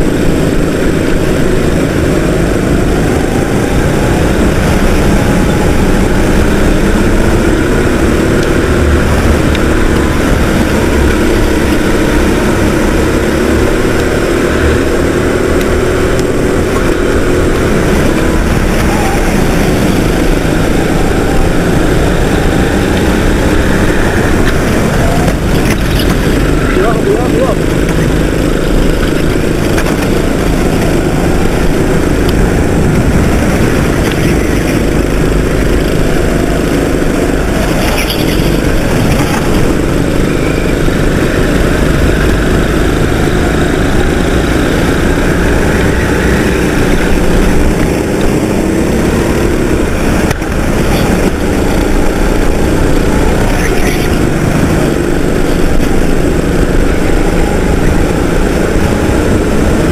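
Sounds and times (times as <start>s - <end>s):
kart engine running hard: 0.0s - 59.9s
other kart engines: 0.0s - 59.9s.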